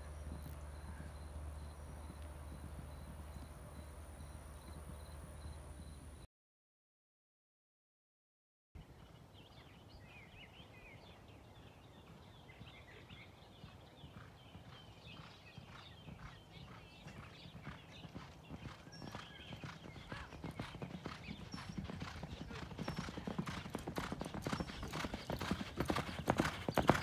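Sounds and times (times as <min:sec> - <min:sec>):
horses galloping on dirt: 0:00.0 - 0:06.1, 0:11.6 - 0:27.0
birds chirping: 0:00.0 - 0:06.2, 0:08.8 - 0:27.0.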